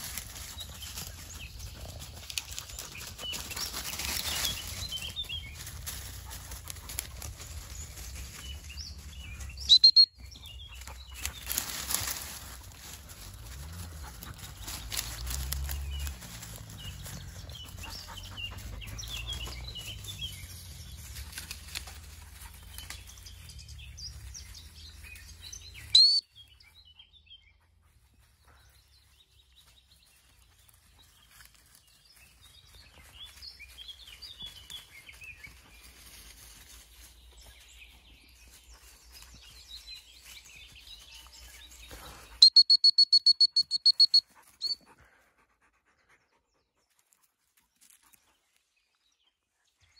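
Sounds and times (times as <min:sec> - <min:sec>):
birds singing: 0:00.1 - 0:44.8
dog whistle high pips: 0:09.7 - 0:10.1, 0:26.0 - 0:26.2, 0:42.4 - 0:44.8
sharp whistle blast: 0:42.4 - 0:44.8.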